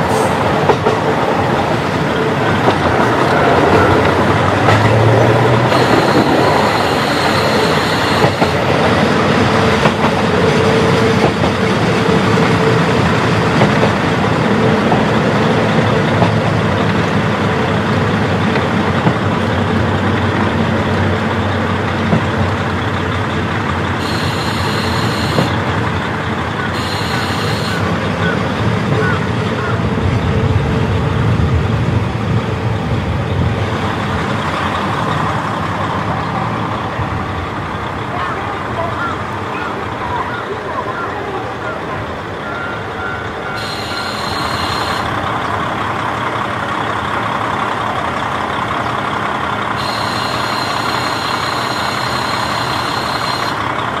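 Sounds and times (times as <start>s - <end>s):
wheels on rails: 0.0s - 29.1s
diesel railcar engine running: 0.0s - 54.0s
high-pitched ringing: 5.7s - 8.7s, 24.0s - 25.6s, 26.7s - 27.9s, 42.5s - 45.2s, 49.8s - 53.6s.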